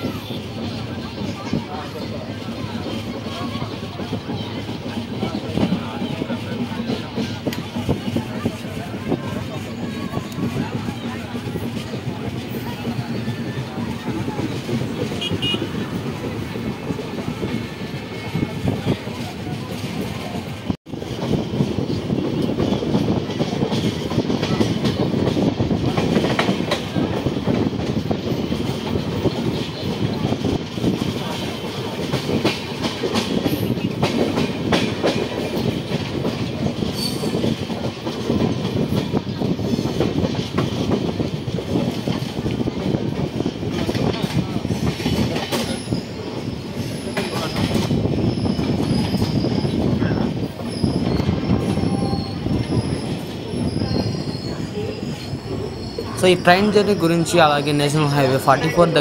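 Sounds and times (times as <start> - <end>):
train wheels rumbling on track: 0.0 - 59.0
wheels clacking over rail joints: 0.0 - 59.0
high-pitched wheel squeals: 45.6 - 57.3.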